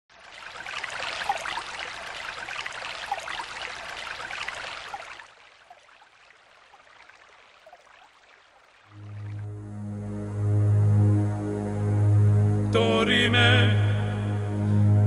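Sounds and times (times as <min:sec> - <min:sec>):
running water splashing: 0:00.1 - 0:09.5.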